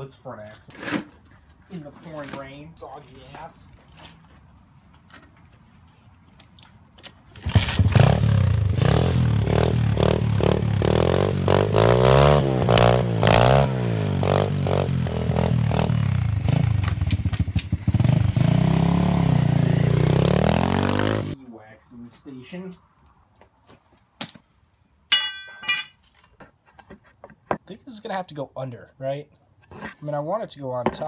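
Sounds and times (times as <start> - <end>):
small engine revving: 7.4 - 21.4.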